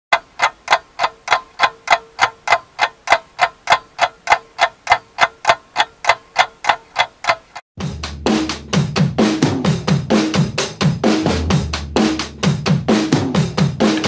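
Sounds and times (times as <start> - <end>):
fast clock ticking: 0.1 - 7.6.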